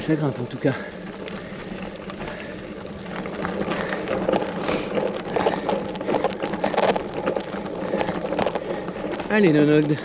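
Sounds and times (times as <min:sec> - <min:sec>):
bicycle tyres crunching on ground: 0:00.0 - 0:10.0.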